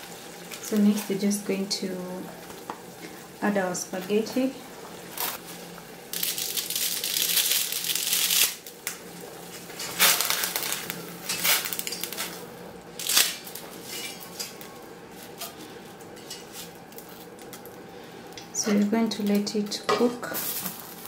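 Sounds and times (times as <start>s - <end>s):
water boiling: 0.0s - 21.0s
dry spaghetti snapping: 13.0s - 13.6s.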